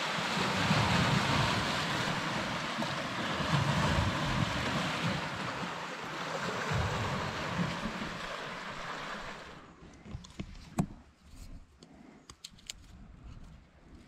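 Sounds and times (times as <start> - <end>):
waves washing over rocks: 0.0 - 9.6
wind rumbling on microphone: 0.0 - 11.8.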